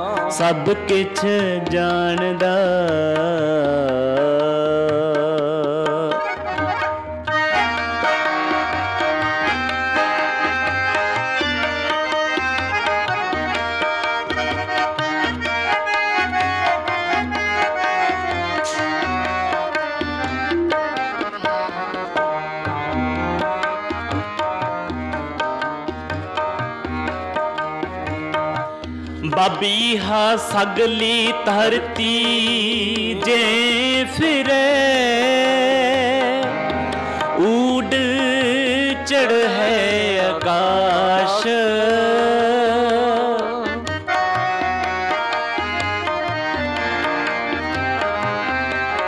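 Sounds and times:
person singing: 0.0s - 6.6s, 17.6s - 20.2s, 29.2s - 45.3s
harmonium melody: 0.0s - 49.0s
tabla beat: 0.0s - 49.0s.

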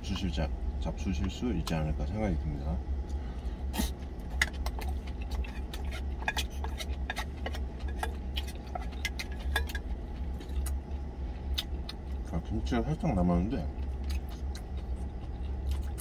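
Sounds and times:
low steady hum: 0.0s - 16.0s
chewing mouth sounds: 3.7s - 12.3s, 13.7s - 16.0s.

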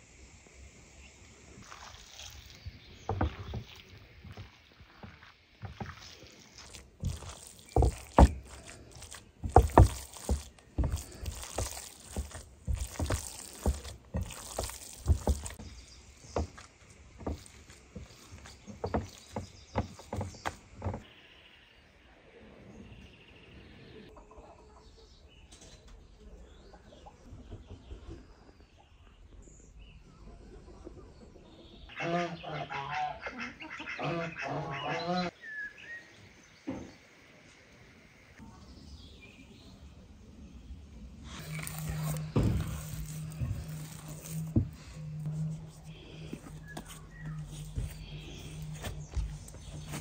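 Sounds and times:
hands squelching wet minced meat: 3.2s - 20.3s, 41.4s - 50.0s
chickens and ducks calling: 31.9s - 35.4s.

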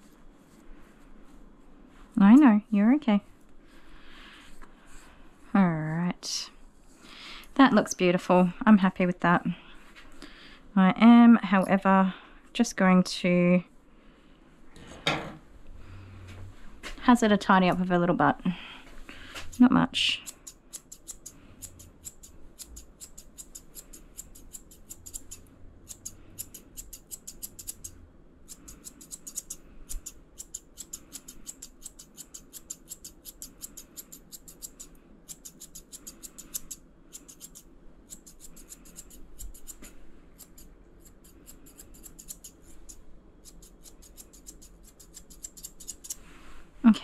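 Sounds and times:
shears snipping dog hair: 19.3s - 46.2s.

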